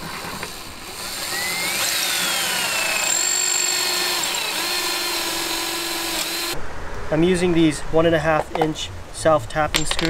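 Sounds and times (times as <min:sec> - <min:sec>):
cordless drill boring into wood: 0:00.0 - 0:06.6.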